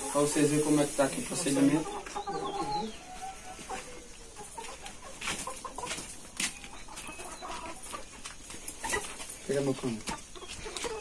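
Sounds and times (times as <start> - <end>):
hens clucking: 0.0 - 11.0.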